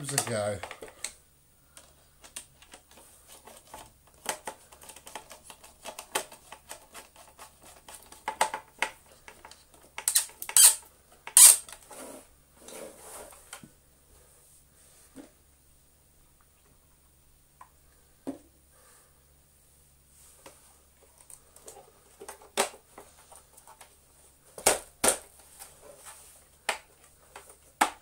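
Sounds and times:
plastic parts clicking and tapping: 0.0 - 11.8.

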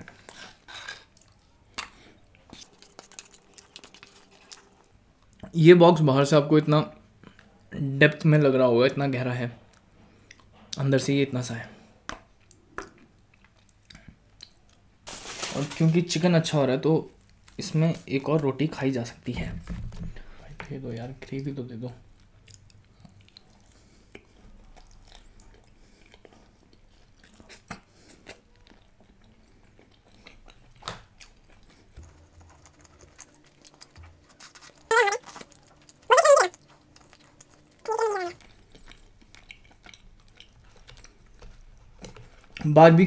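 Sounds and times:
person chewing food: 0.0 - 5.6, 12.3 - 14.9, 22.1 - 42.6
short vocal sounds: 34.9 - 35.2, 36.1 - 36.6.

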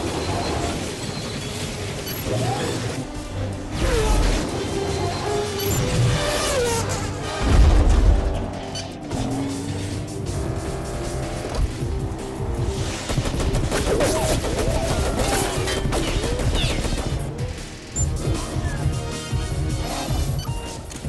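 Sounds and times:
rapid gunfire: 0.0 - 20.8
car engines: 0.0 - 21.0
orchestral film score: 0.0 - 21.0.

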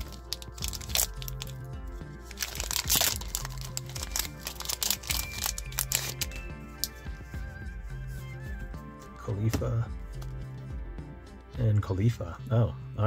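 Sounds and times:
foil wrapper crinkling and tearing: 0.0 - 7.0
background music: 0.0 - 13.0.

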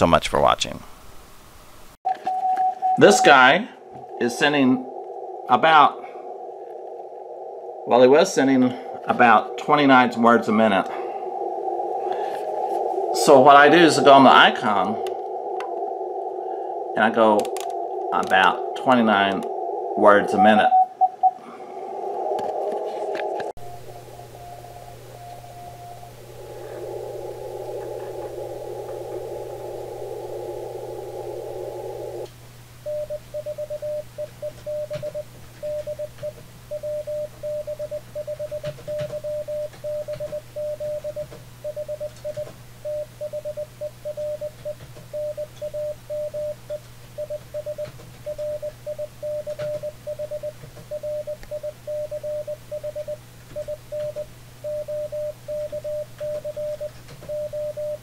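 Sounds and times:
morse code tone: 2.1 - 3.6, 20.3 - 21.4, 32.9 - 58.0
radio receiver hiss: 3.1 - 20.6, 21.8 - 48.2.

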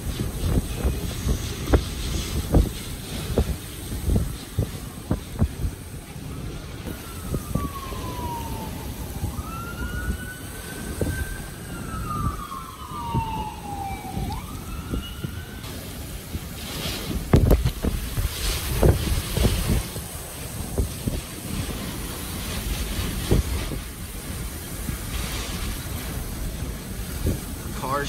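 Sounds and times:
wind and rain buffeting car: 0.0 - 28.0
siren wailing: 6.4 - 16.1.

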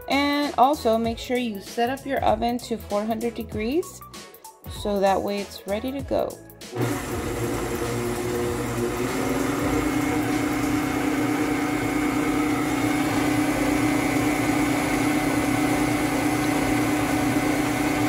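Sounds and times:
beater whisking in metal bowl: 6.8 - 18.0
stand mixer motor humming: 6.8 - 18.0.

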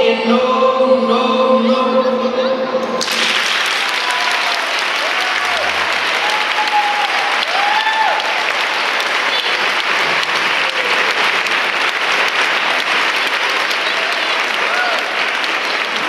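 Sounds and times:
audience applauding: 3.0 - 16.0
drawn-out cheers: 3.7 - 11.2, 13.7 - 15.9.

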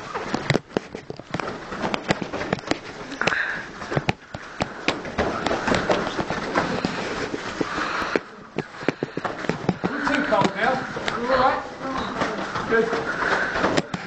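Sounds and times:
bare feet stamping on foam mats: 0.0 - 14.0.

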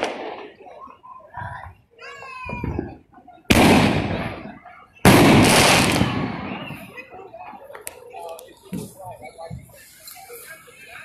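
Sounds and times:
firework bangs: 0.0 - 0.7, 3.5 - 7.0.

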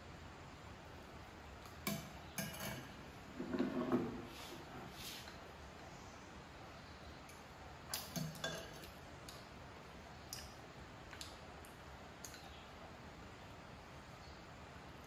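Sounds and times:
tableware clinking: 1.9 - 3.0, 8.0 - 8.9.

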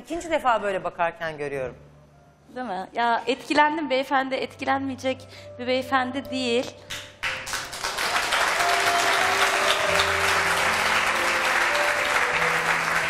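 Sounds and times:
music with long held notes: 7.2 - 13.0
studio audience applauding: 7.2 - 13.0.

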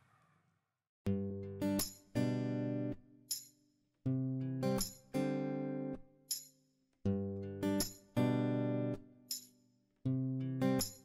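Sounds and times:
acoustic guitar strumming chords: 7.1 - 9.0.

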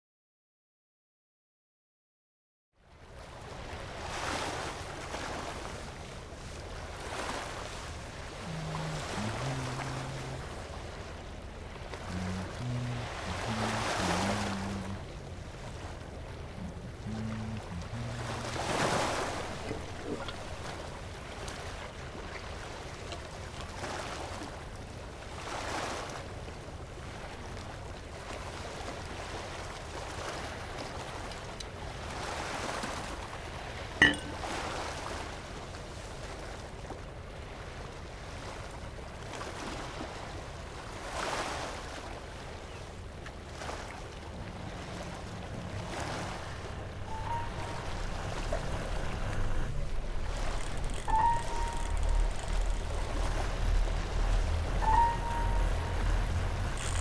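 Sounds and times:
waves washing against shore: 3.1 - 57.0.

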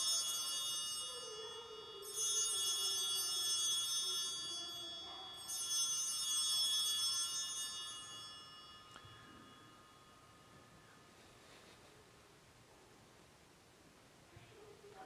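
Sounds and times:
altar bells ringing: 0.0 - 11.5.

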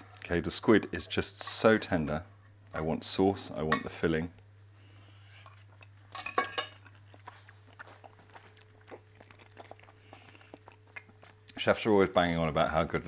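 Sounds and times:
faint kitchen hum: 0.0 - 13.0
person chewing: 5.2 - 6.0, 6.7 - 11.6
cutlery clattering on plate: 6.2 - 6.8.

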